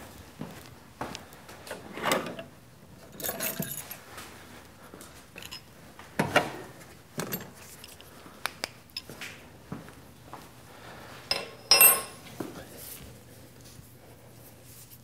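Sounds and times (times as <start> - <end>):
metallic tool clinks and rattles: 3.0 - 4.0, 5.4 - 5.7, 11.3 - 12.3.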